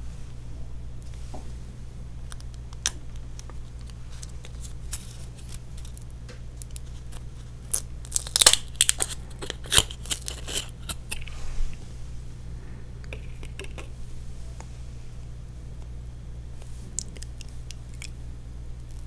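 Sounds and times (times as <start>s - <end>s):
low steady hum: 0.0s - 19.0s
plastic packaging crinkling: 2.3s - 11.3s
packaging tearing: 3.6s - 6.0s, 6.6s - 11.3s.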